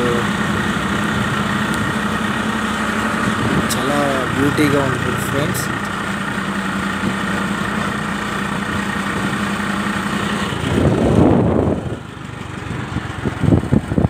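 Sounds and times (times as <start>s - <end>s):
vehicle engine running: 0.0s - 14.0s
wind rumble on microphone: 3.2s - 3.7s, 10.6s - 14.0s.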